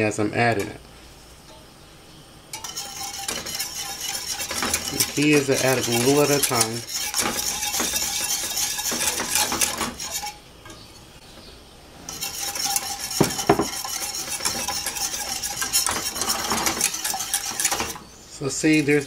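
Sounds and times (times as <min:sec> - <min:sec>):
whisk scraping against metal pot: 0:02.5 - 0:10.8, 0:12.0 - 0:19.0.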